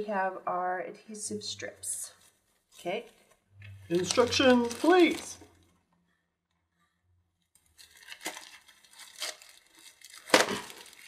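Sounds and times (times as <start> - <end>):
paper and packaging rustling: 2.2 - 5.7, 7.6 - 11.0
sharp paper crackle: 3.9 - 5.6, 7.6 - 11.0.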